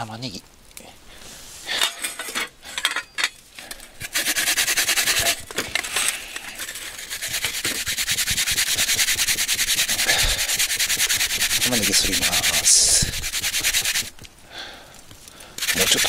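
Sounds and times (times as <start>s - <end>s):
onion grating on metal grater: 4.0s - 14.1s, 15.6s - 16.0s.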